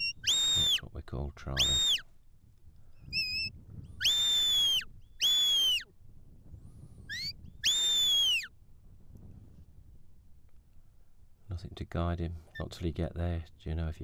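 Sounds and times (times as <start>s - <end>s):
high whistles: 0.0s - 0.8s, 1.6s - 2.0s, 3.1s - 5.9s, 7.1s - 8.5s
short rising whistle: 0.0s - 0.8s, 1.6s - 2.0s, 3.1s - 5.9s, 7.1s - 8.5s.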